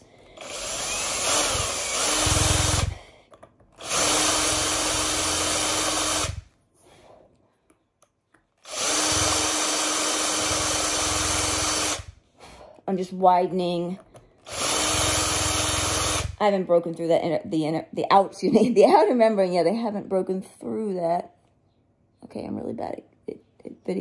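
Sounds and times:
cordless drill boring into eggshell: 0:00.3 - 0:03.0, 0:03.8 - 0:06.4, 0:08.6 - 0:12.1, 0:14.4 - 0:16.4.

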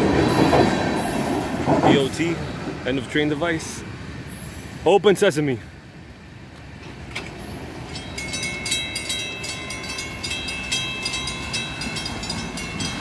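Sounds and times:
railroad crossing bells ringing: 0:07.7 - 0:13.0.

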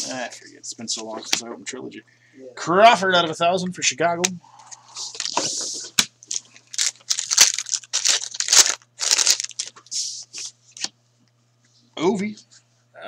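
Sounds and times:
foil wrapper tearing and crinkling: 0:05.0 - 0:09.8.

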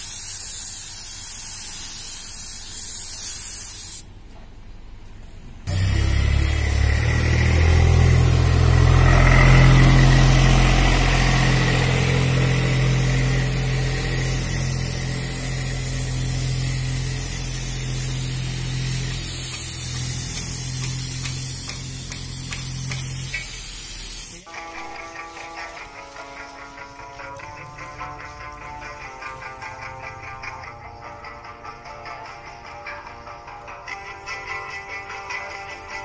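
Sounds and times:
spray gun hissing: 0:00.0 - 0:04.1, 0:05.7 - 0:24.5
low motor hum: 0:05.7 - 0:20.9.

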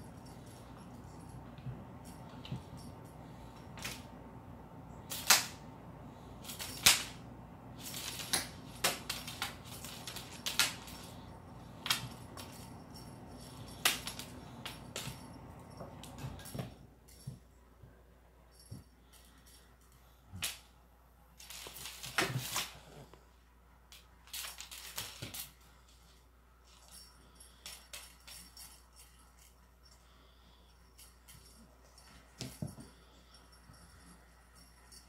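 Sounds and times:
low steady hum: 0:00.0 - 0:35.0
cat claws clicking on wood floor: 0:07.8 - 0:11.2.

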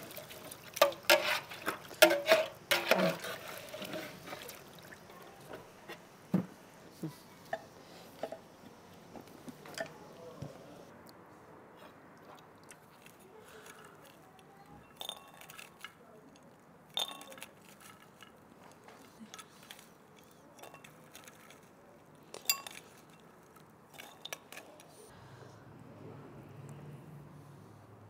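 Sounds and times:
utensils clinking against dishes: 0:00.8 - 0:04.4, 0:09.7 - 0:10.0, 0:13.5 - 0:18.4, 0:19.0 - 0:21.7, 0:22.4 - 0:23.3, 0:23.9 - 0:25.0.

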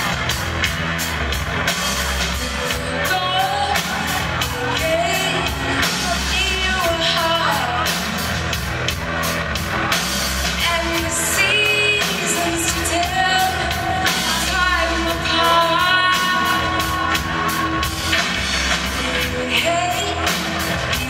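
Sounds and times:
drums steady beat: 0:00.0 - 0:21.0
rock band playing: 0:00.0 - 0:21.0
woman singing: 0:02.4 - 0:08.1, 0:10.6 - 0:21.0.

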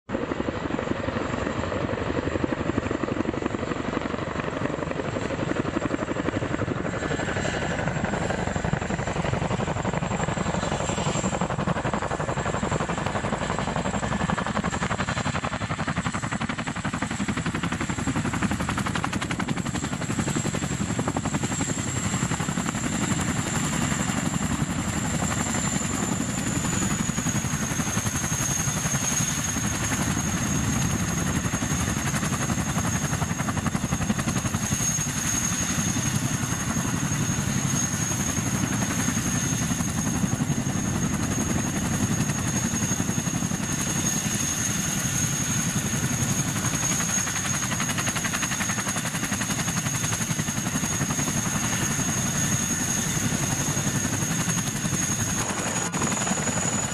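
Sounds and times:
high whine of turbine engines: 0:00.1 - 0:56.9
helicopter rotors chopping: 0:00.2 - 0:56.9.

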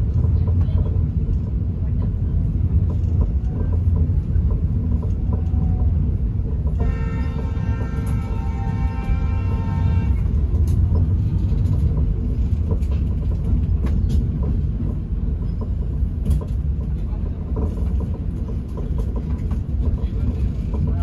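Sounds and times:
train coach rumbling: 0:00.0 - 0:21.0
sharp clacks and rattles: 0:10.2 - 0:21.0.

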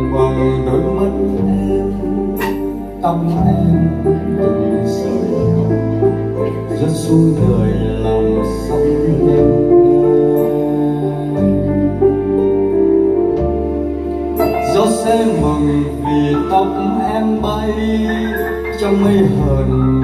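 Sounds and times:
slow ballad on digital piano: 0:00.0 - 0:20.0.

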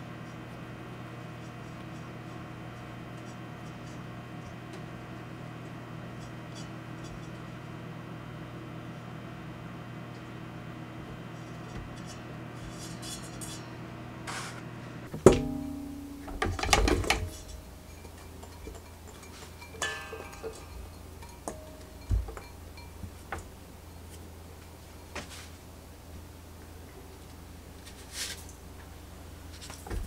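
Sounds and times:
metal bowl clanking: 0:15.2 - 0:23.3.

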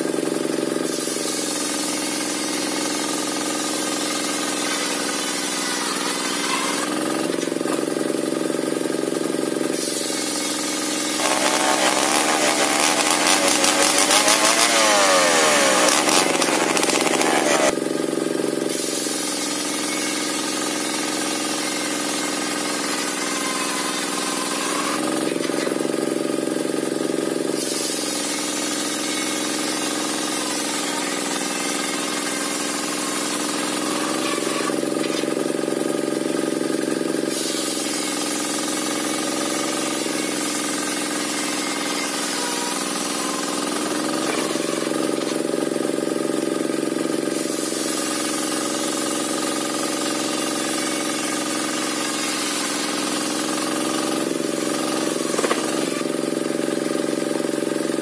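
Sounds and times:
saw blade cutting wood: 0:09.8 - 0:17.8, 0:39.6 - 0:45.5, 0:52.0 - 0:56.2
sawmill machine hum: 0:10.2 - 0:17.8
engine running under load: 0:11.2 - 0:17.7.

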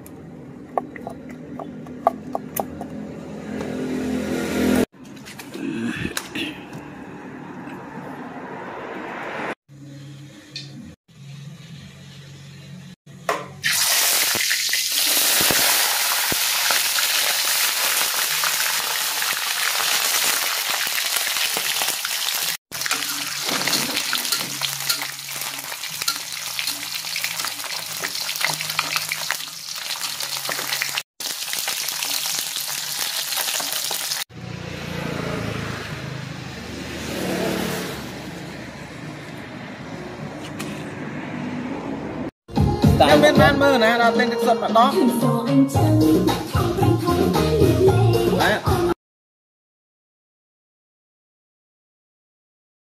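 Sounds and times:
fish sizzling in hot oil: 0:13.6 - 0:34.3.

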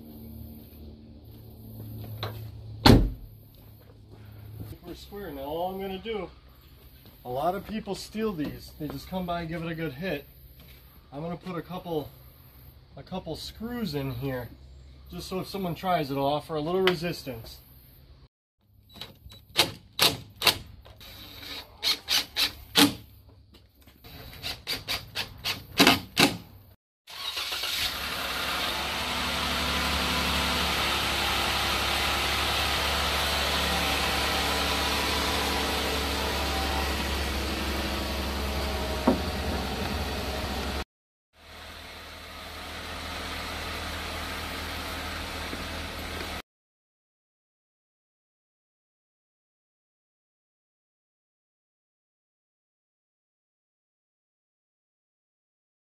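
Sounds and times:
engine-like running rumble: 0:32.2 - 0:40.8.

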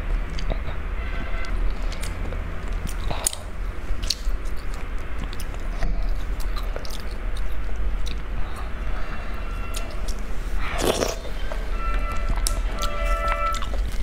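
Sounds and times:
low hum: 0:00.0 - 0:14.0
chewing food: 0:01.4 - 0:09.0, 0:09.7 - 0:14.0
wet mouth clicks: 0:01.8 - 0:08.7.

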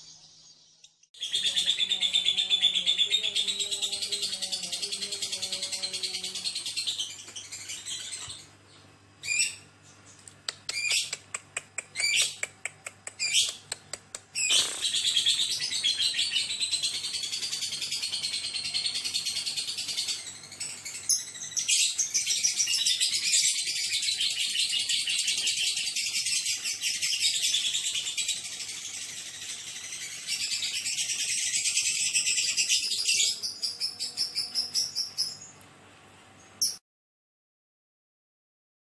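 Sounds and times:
lovebird trilling chatter: 0:10.5 - 0:35.4
lovebird quick chirps: 0:13.1 - 0:15.1.

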